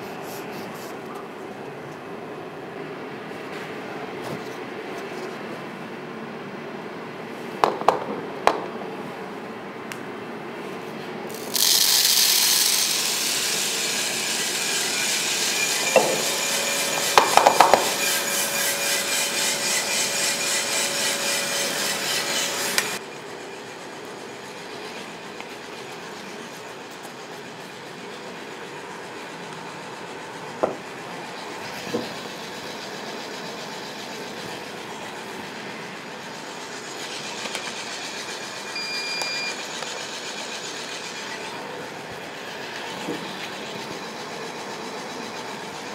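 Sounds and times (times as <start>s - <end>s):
roaster whirring: 9.0s - 45.9s
coffee beans rattling in drum: 11.3s - 18.4s.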